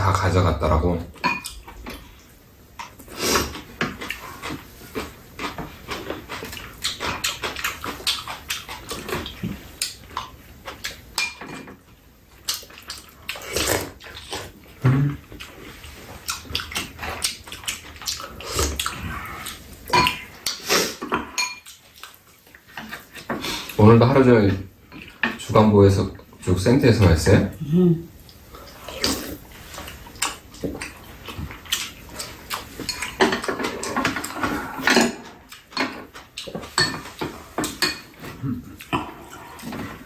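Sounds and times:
wet chewing and slurping: 1.4s - 11.2s, 12.4s - 23.8s, 28.2s - 40.0s.

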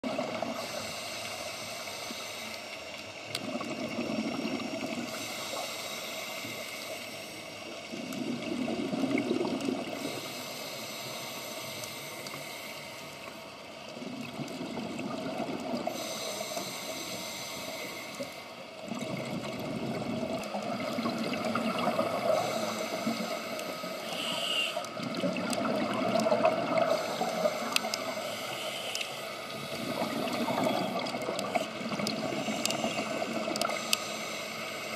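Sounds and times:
regulator hissing inhale: 0.4s - 3.2s, 4.9s - 8.0s, 9.9s - 13.7s, 15.8s - 18.8s, 21.0s - 25.1s, 26.7s - 34.9s
bubbling exhale: 18.9s - 34.9s.

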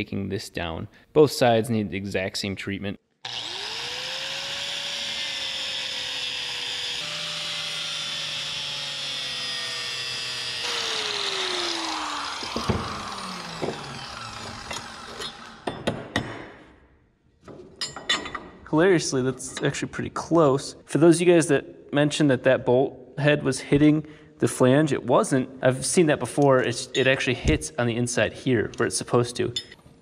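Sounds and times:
angle grinder grinding metal: 3.3s - 15.8s.

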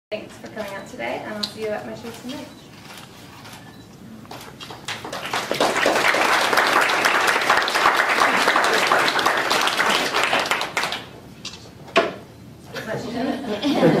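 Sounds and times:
audience applauding: 4.6s - 11.2s.

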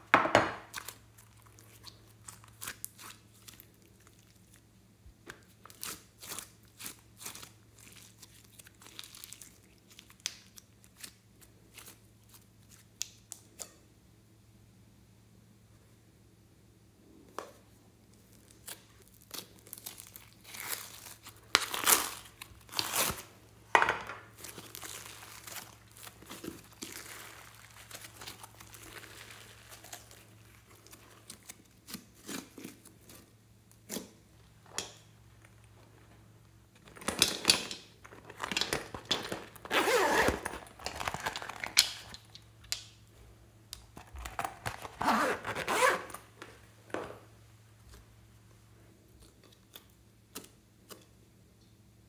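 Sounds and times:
slime crackling and popping: 5.3s - 13.4s, 24.4s - 33.2s.

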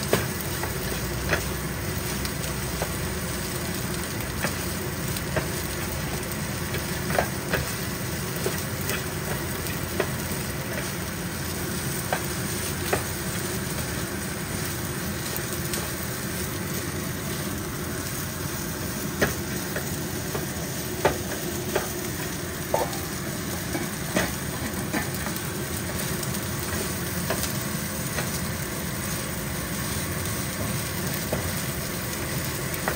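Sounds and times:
rice sizzling in a skillet: 0.0s - 32.9s
spatula knocking and scraping pan: 19.2s - 26.1s.

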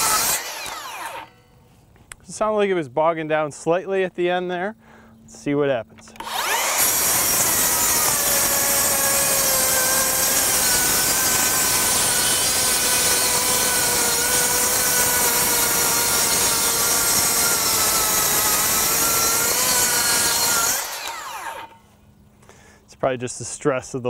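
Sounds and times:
circular saw cutting wood sheets: 0.0s - 1.4s, 6.2s - 21.8s.

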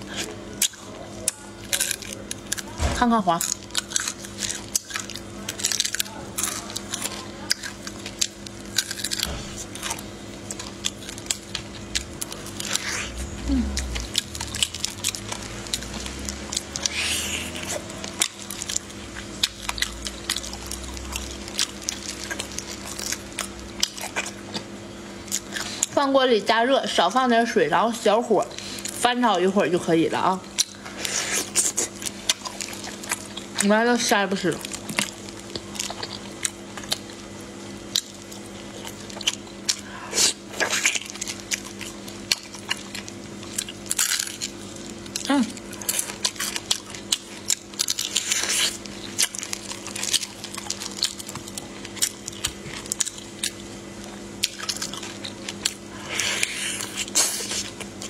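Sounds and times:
wet chewing and biting: 0.0s - 26.0s, 30.4s - 33.7s, 34.5s - 58.0s
steady low hum: 0.0s - 58.0s.

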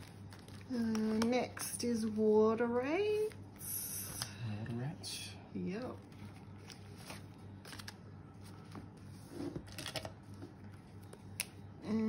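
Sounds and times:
paper and plastic rustling: 0.0s - 1.4s, 6.0s - 11.3s.

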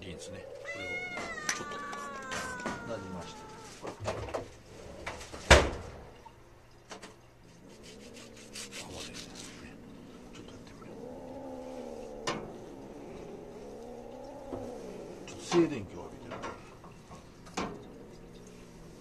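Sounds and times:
cat growling low: 0.0s - 5.4s, 7.5s - 19.0s
faint ticks: 6.2s - 19.0s.

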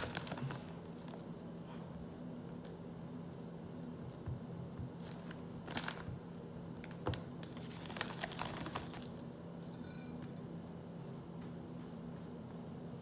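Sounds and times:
plastic bag crinkling: 0.0s - 1.2s, 5.0s - 6.2s, 6.8s - 9.2s
faint steady hum: 0.0s - 13.0s.

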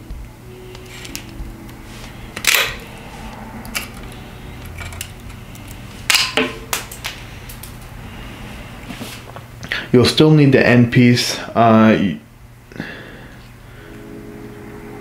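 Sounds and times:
cable cutters snapping: 2.4s - 2.8s, 3.6s - 7.9s.

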